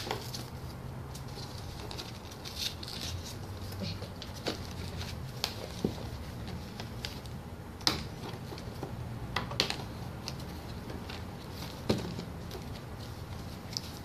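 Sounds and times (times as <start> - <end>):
hands clicking and tapping packaging: 3.7 - 14.0.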